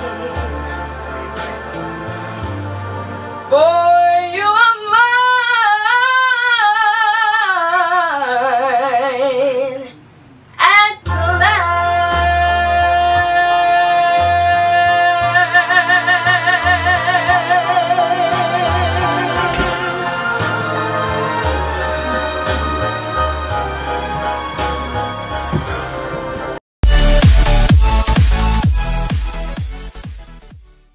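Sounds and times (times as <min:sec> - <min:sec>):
girl singing: 0:10.6 - 0:20.6
backing track: 0:11.1 - 0:30.8.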